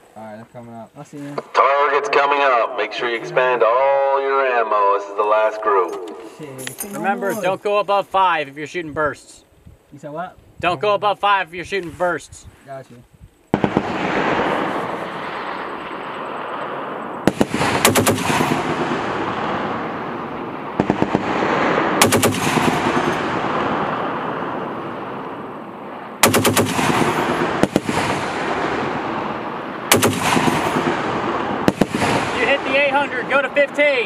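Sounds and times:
rumbling gunfire echo: 0:13.5 - 0:33.7
machine gun bursts: 0:26.2 - 0:28.2.

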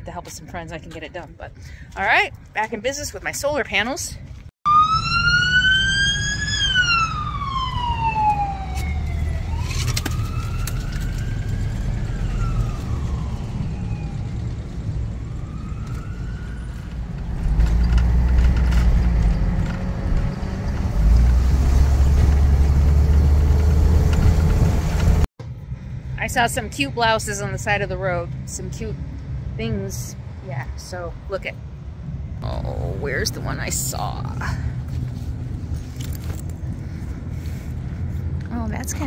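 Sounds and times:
engine rumble and road noise: 0:00.0 - 0:39.0
siren wailing: 0:04.7 - 0:17.3.

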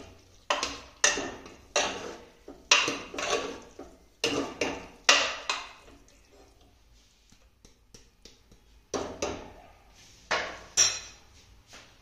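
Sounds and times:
metal ladle knocking and scraping: 0:00.0 - 0:06.8.

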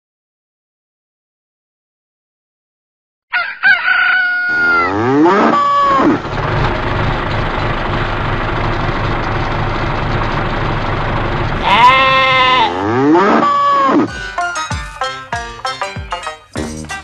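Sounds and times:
rooster crowing: 0:03.3 - 0:06.2, 0:11.6 - 0:12.7
cow mooing: 0:04.3 - 0:06.2, 0:11.6 - 0:14.1
engine chugging: 0:04.6 - 0:15.0.

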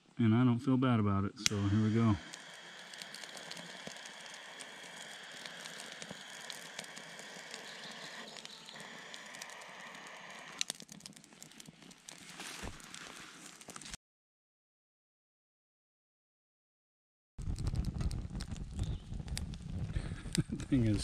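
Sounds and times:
kindling crackling: 0:01.2 - 0:14.0, 0:17.4 - 0:21.0
blowtorch lighter hissing: 0:01.4 - 0:10.7.

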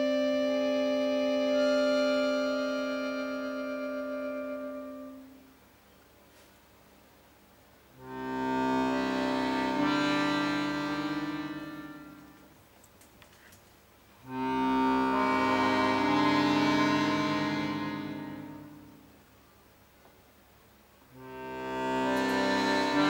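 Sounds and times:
accordion playing slow chords: 0:00.0 - 0:05.8, 0:07.9 - 0:12.6, 0:14.2 - 0:19.3, 0:21.1 - 0:23.0
faint clicks: 0:12.2 - 0:13.8.

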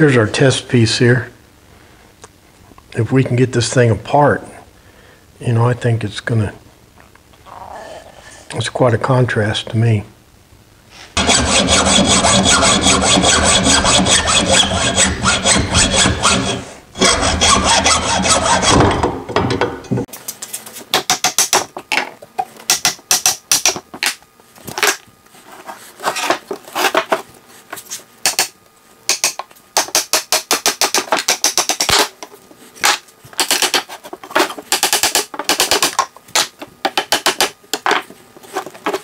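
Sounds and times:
hand saw sawing: 0:11.2 - 0:18.9.

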